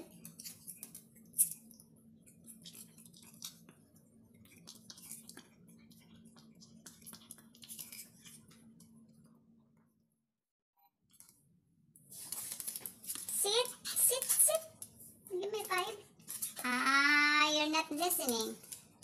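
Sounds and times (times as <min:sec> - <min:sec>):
dog claws clicking on wood floor: 0:12.3 - 0:15.0.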